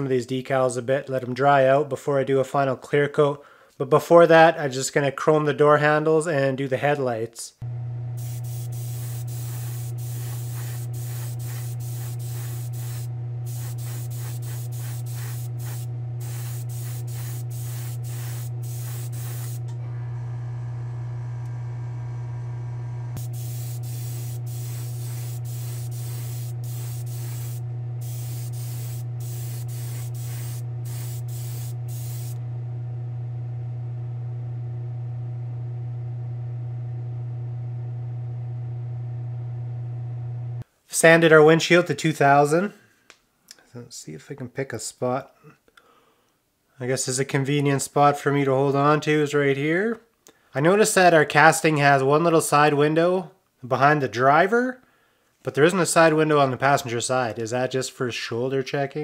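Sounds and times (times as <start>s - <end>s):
steady low hum: 7.6s - 33.7s
spray gun hissing bursts: 8.2s - 19.7s, 23.2s - 32.4s.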